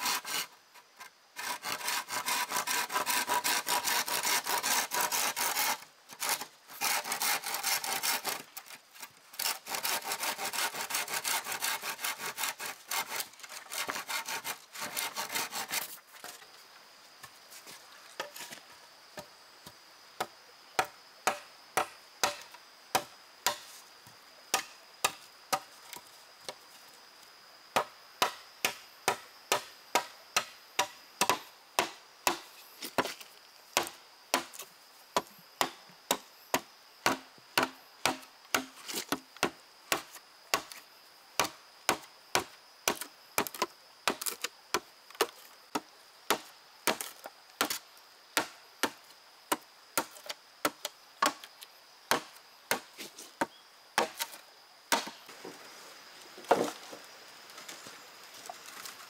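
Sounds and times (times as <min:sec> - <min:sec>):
blade chopping wood: 0:20.2 - 0:23.7, 0:24.5 - 0:26.1, 0:27.8 - 0:33.2, 0:33.8 - 0:40.8, 0:41.4 - 0:47.8, 0:48.4 - 0:51.5, 0:52.1 - 0:55.2.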